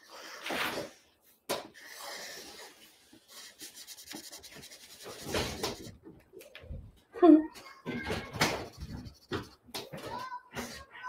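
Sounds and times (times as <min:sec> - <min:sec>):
marker drawing on paper: 0:01.8 - 0:06.0, 0:08.2 - 0:10.8.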